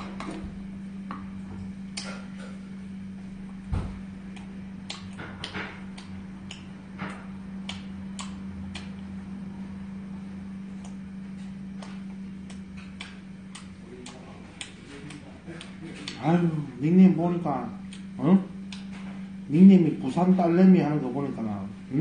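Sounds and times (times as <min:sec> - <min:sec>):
steady low hum: 0:00.0 - 0:22.0
thump: 0:03.7 - 0:04.0
eating clicks and ticks: 0:04.3 - 0:09.1, 0:10.8 - 0:16.3, 0:17.9 - 0:18.9.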